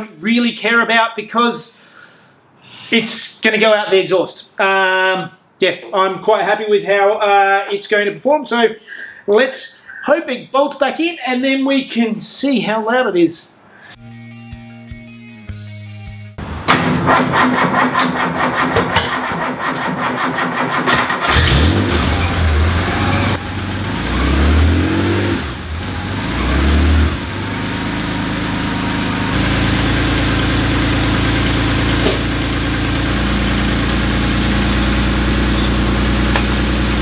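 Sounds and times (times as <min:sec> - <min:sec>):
starter motor cranking: 0:16.7 - 0:23.4
car engine revving and idling: 0:21.2 - 0:37.0.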